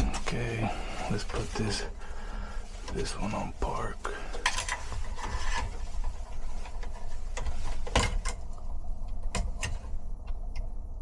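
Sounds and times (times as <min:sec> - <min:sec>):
gloved hands rustling: 0:00.0 - 0:09.1
steady low rumble: 0:00.0 - 0:11.0
sharp clicks and knocks: 0:04.4 - 0:10.7.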